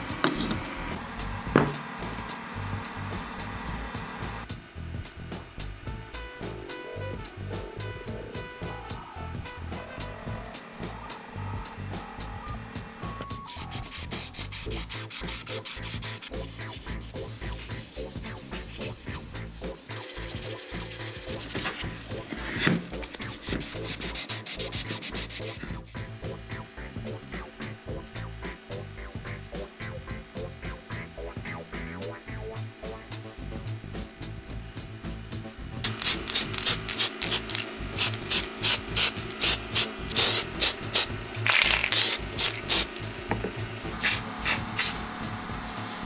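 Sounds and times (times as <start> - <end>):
spray hissing: 5.5 - 30.5, 35.8 - 46.0
spray can rattling: 12.9 - 27.4, 35.8 - 46.0
pad scrubbing glass: 13.5 - 25.9.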